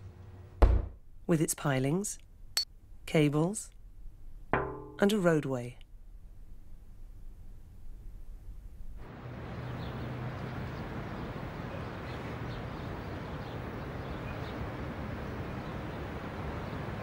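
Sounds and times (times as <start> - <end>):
distant traffic hum: 9.0 - 17.0.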